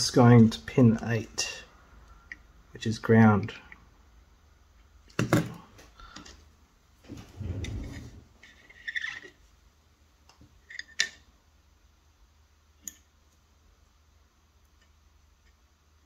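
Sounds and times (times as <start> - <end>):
dull bump and rub: 7.0 - 8.4.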